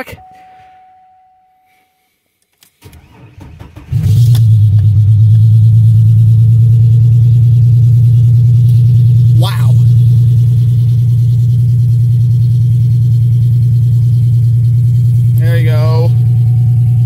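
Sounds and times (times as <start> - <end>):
car engine idling: 2.9 - 17.0.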